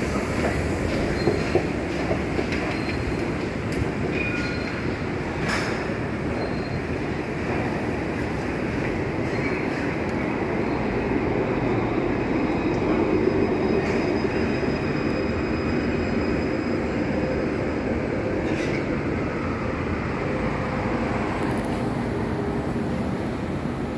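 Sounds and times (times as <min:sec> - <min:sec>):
electric tram rumbling on tracks: 0:00.0 - 0:23.9
street traffic: 0:00.0 - 0:23.9.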